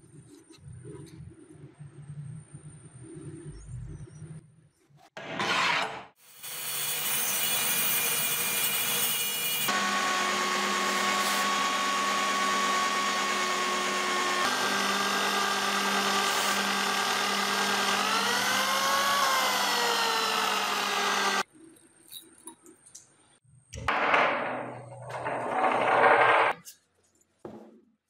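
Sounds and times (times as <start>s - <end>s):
electric drill whining: 9.7s - 21.4s.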